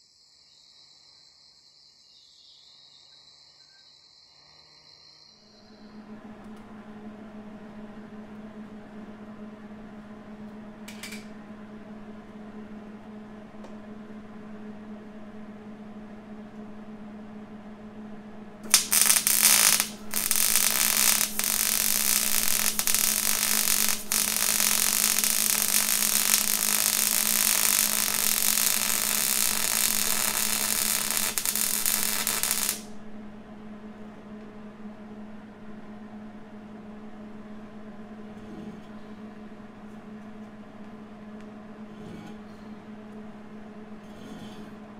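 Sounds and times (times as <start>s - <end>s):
steady low hum: 5.5s - 44.9s
arc welding crackling sizzle: 18.6s - 33.0s.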